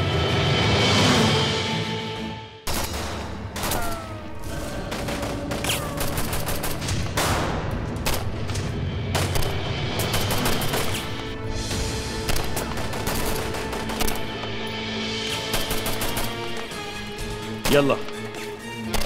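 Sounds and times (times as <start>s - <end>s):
heavy automatic gunfire: 4.5s - 8.4s, 9.1s - 11.2s, 12.2s - 14.4s, 15.3s - 16.6s.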